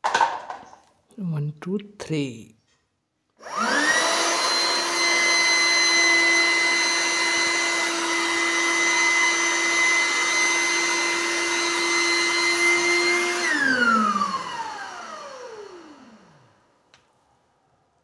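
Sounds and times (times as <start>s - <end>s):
motor winding down: 3.4s - 16.6s
electric air pump whining: 3.4s - 16.7s.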